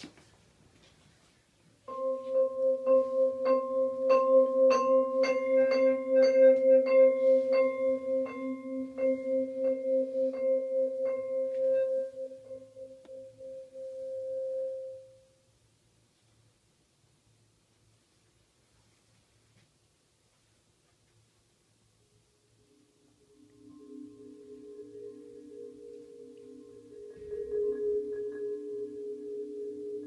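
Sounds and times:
vibraphone notes ringing: 1.9s - 15.3s, 23.1s - 30.0s.

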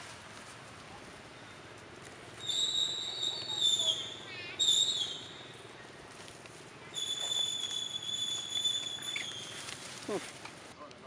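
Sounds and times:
monkey squealing: 6.9s - 10.2s.

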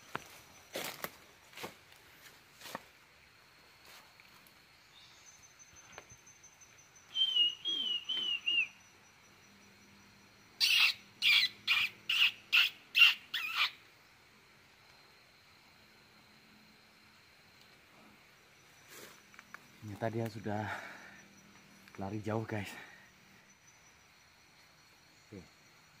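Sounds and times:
animal whistled notes: 7.1s - 8.8s.

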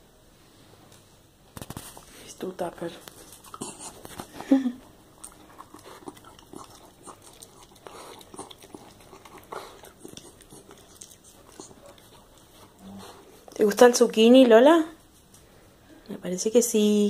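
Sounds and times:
dog chewing and licking: 3.0s - 13.8s.

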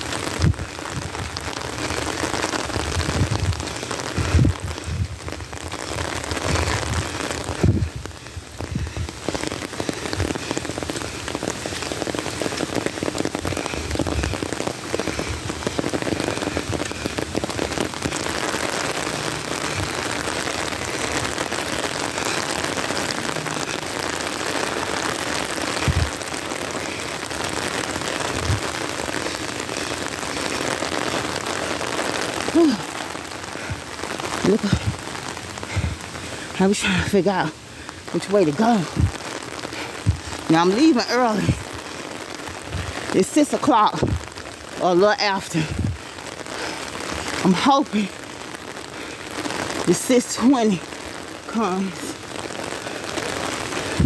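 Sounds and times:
heavy rain pouring: 0.0s - 54.0s.

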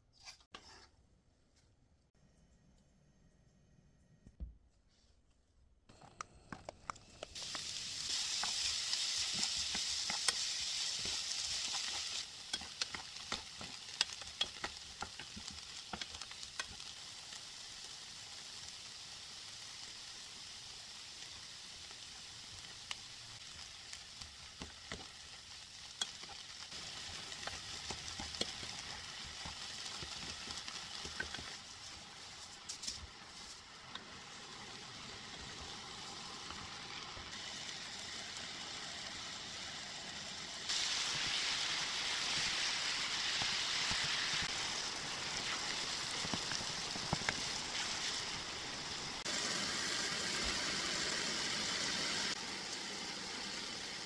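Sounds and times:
wooden spatula scraping a pan: 0.2s - 1.0s
onions sizzling in oil: 5.9s - 54.0s.

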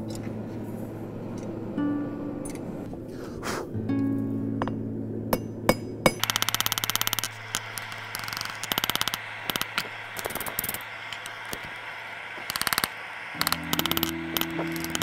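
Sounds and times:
background music with steady tones: 1.8s - 2.5s, 13.4s - 15.0s
hammer striking steel on anvil: 4.6s - 6.4s.

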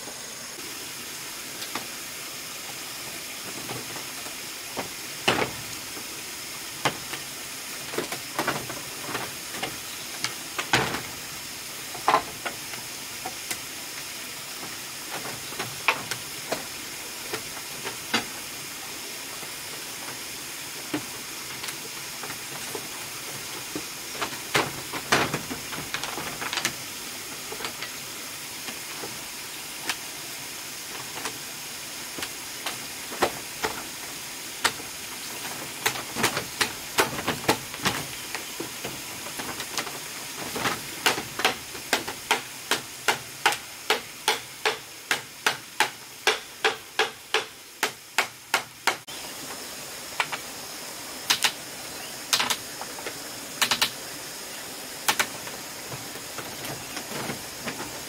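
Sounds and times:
steady high hiss: 0.0s - 58.0s
machete chopping bamboo: 40.5s - 49.1s.

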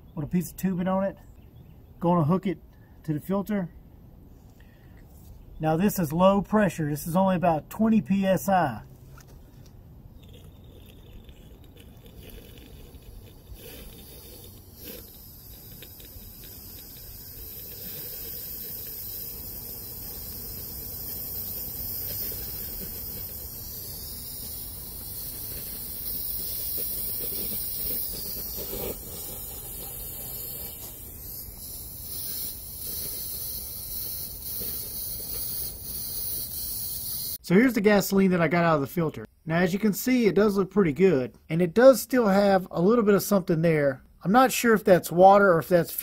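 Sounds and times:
compressed air hissing with whistle: 12.3s - 37.4s.

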